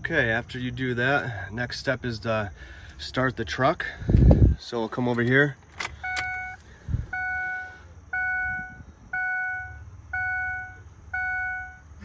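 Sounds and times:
car warning chime: 6.0s - 12.0s.

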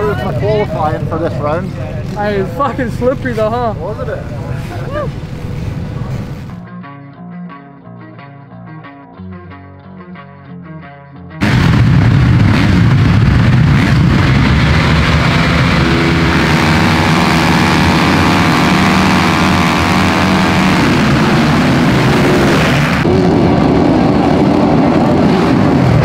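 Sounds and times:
motocross bikes revving: 12.4s - 26.0s.

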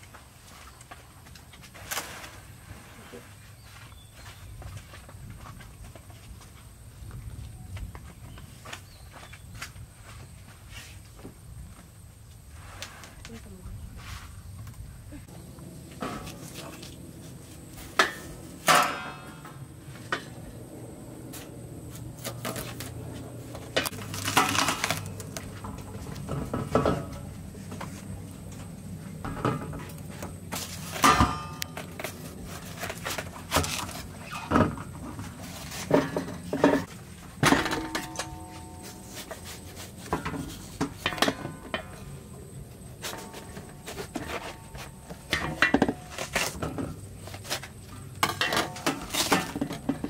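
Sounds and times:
knocks and scrapes on metal trays: 25.5s - 28.1s, 29.2s - 42.2s, 42.9s - 50.0s.

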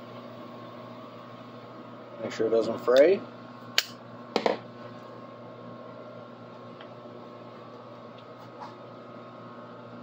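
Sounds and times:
low electrical hum: 0.0s - 10.0s
object set down on table: 4.3s - 4.6s.

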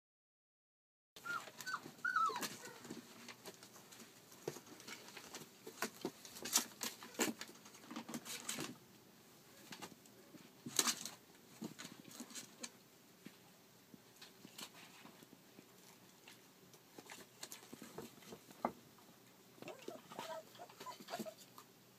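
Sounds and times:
puppy whining: 1.2s - 3.0s, 19.6s - 21.6s.

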